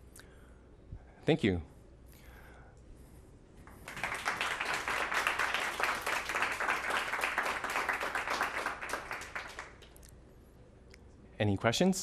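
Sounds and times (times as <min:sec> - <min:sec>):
audience applauding: 0:03.8 - 0:09.9.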